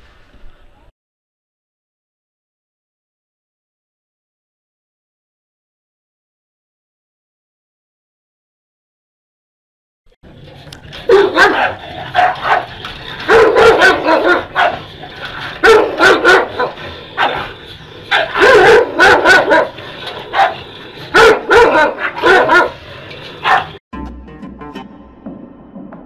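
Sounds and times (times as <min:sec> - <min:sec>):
dogs barking: 0:10.8 - 0:23.8.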